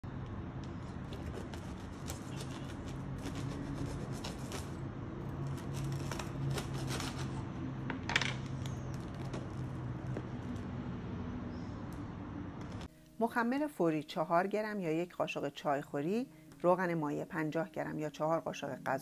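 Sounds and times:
knife sawing through crusty bread: 1.0 - 4.8, 5.5 - 7.5.

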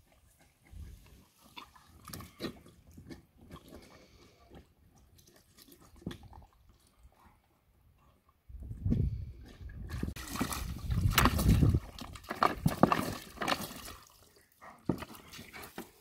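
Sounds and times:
small water splashes: 10.1 - 14.5.

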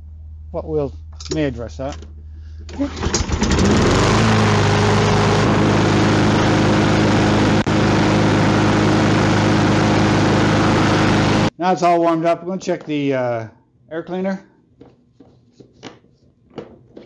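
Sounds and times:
mower engine running: 2.8 - 11.5.

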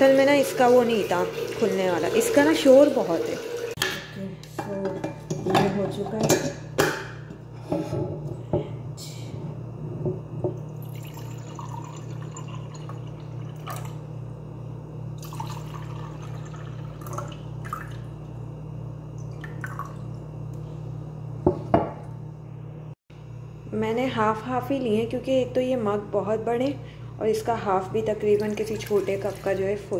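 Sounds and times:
water pouring into mugs: 0.2 - 3.8, 10.7 - 14.0, 15.2 - 18.1, 19.3 - 20.1, 28.3 - 29.8
steady low hum: 3.8 - 29.9.

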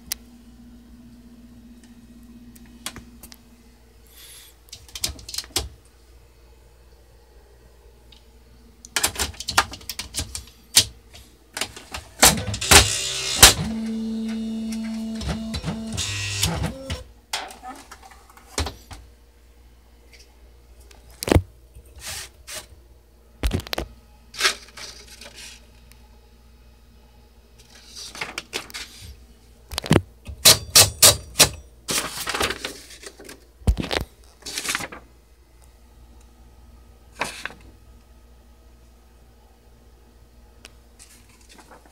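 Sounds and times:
typewriter clicks and knocks: 9.0 - 11.0, 30.3 - 31.6
typewriter motor running: 12.2 - 17.0.

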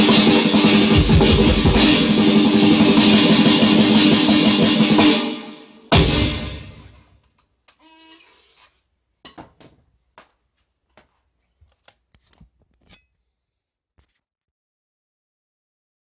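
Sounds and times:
cymbal crash: 0.0 - 7.0.

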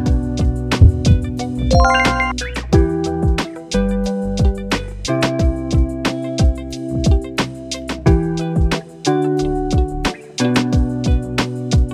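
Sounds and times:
steady drum beat: 0.8 - 1.4
held chords: 1.7 - 2.3.

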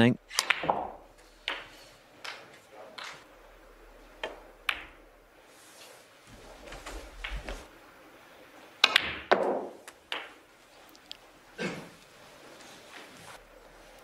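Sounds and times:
cue striking ball: 0.3 - 2.4, 4.2 - 5.0, 8.8 - 10.4
snooker balls clicking: 0.3 - 3.3, 4.0 - 5.1, 6.6 - 7.7, 8.8 - 11.3.

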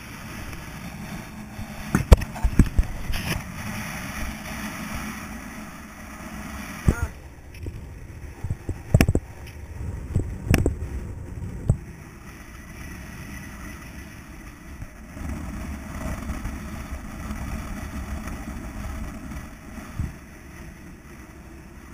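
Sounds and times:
wind buffeting microphone: 0.0 - 21.9.

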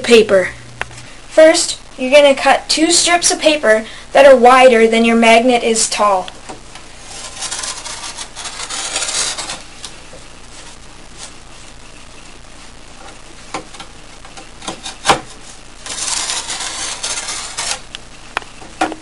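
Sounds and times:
knife cutting paper: 7.0 - 9.9, 15.8 - 18.0.

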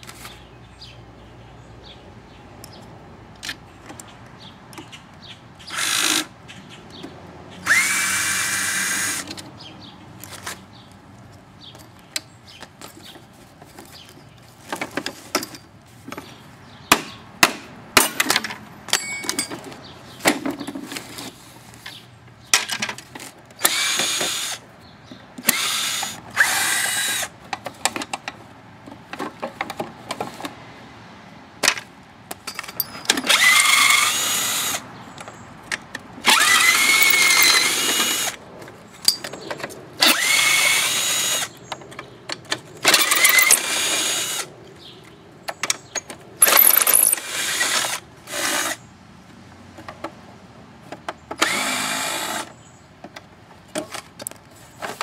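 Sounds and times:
power drill whining: 7.7 - 9.3, 23.6 - 24.6, 33.3 - 34.8, 36.2 - 38.4, 40.0 - 41.6, 42.9 - 44.5, 51.4 - 52.5
parts clicking and rattling: 18.0 - 30.5, 31.6 - 48.0, 53.0 - 55.0.

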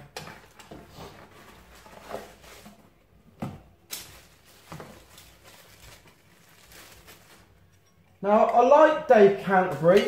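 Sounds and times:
plastic wrapping rustling: 0.3 - 7.9.

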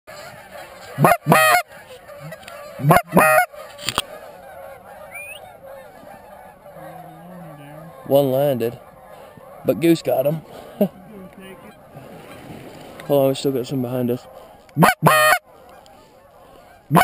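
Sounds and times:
flock of geese chattering: 0.1 - 17.0
goose double honks: 0.2 - 8.1, 14.3 - 17.0.

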